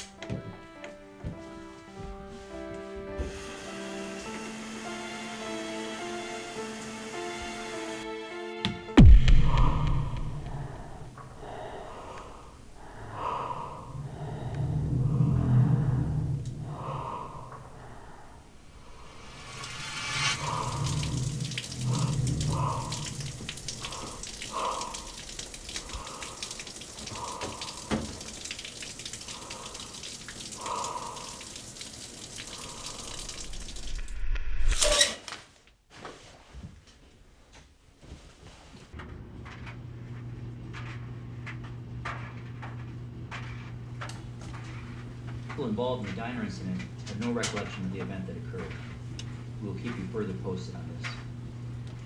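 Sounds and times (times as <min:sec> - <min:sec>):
shower spray running: 0:02.3 - 0:08.4, 0:18.7 - 0:34.2.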